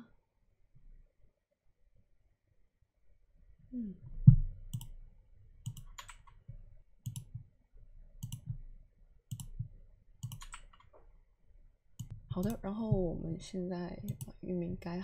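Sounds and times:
computer mouse clicking: 0:04.7 - 0:05.0, 0:05.6 - 0:06.4, 0:07.0 - 0:07.4, 0:08.2 - 0:08.6, 0:09.3 - 0:11.0, 0:12.0 - 0:12.6, 0:14.1 - 0:14.3.

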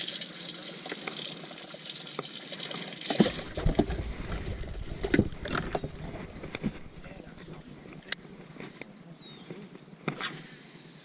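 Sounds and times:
water splashing and trickling: 0:00.0 - 0:07.6
lid knocks and thumps: 0:03.1 - 0:06.8.

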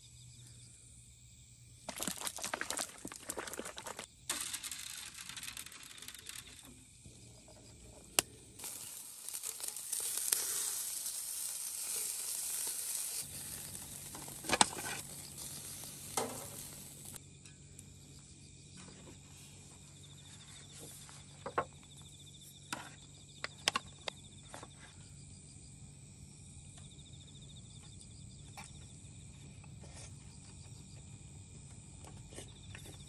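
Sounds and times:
crickets chirping: 0:00.0 - 0:33.0.

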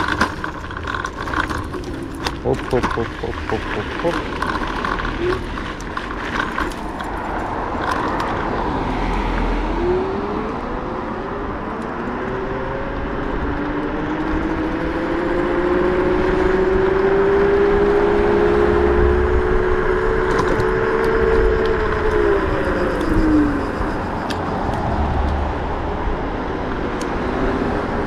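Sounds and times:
rattles and knocks over bumps: 0:00.0 - 0:08.7
electric scooter motor whine: 0:00.0 - 0:28.0
wind and tyre noise: 0:00.0 - 0:28.0.

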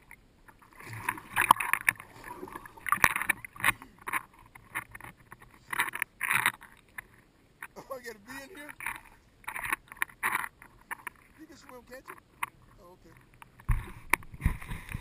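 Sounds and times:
water splashing from swimming: 0:00.0 - 0:04.3.

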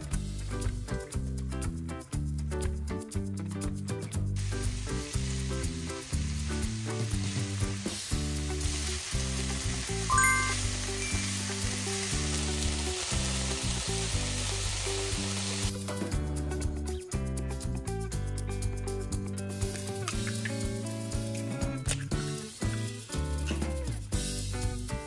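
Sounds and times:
cabbage sizzling in oil: 0:04.4 - 0:16.2, 0:19.4 - 0:24.9
background music: 0:09.8 - 0:13.1.

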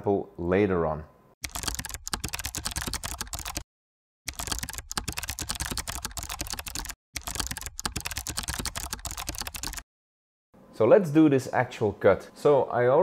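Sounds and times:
rapid keyboard typing clicks: 0:01.4 - 0:03.7, 0:04.3 - 0:09.8.

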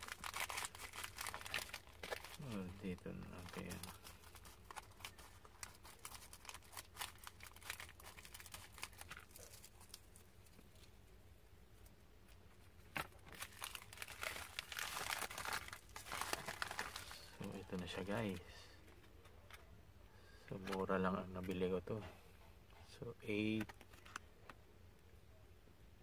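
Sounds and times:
plastic mailer bag crinkling: 0:00.0 - 0:10.9, 0:13.0 - 0:18.4.

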